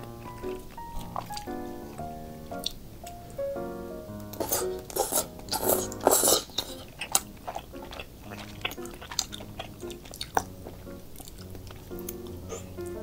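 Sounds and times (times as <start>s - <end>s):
wet chewing with smacks: 0.0s - 2.8s, 4.2s - 13.0s
slurping noodles: 4.4s - 11.8s.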